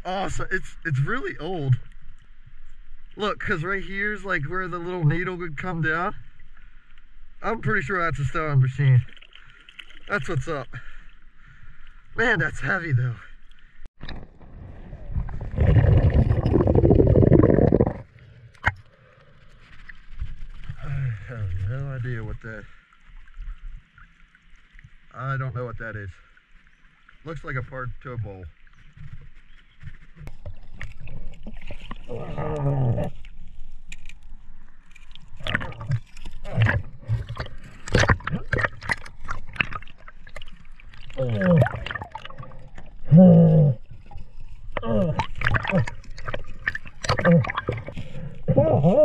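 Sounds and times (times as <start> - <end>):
muffled water rushing underwater: 13.6 - 25.1, 26.3 - 48.8.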